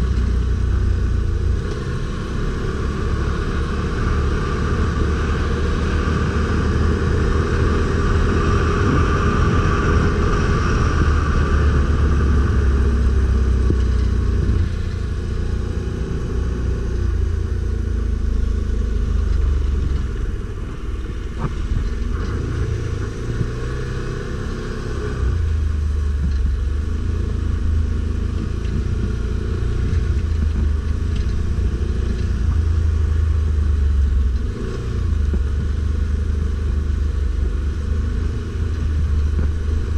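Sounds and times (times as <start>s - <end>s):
atv engine rumbling: 0.0s - 39.9s.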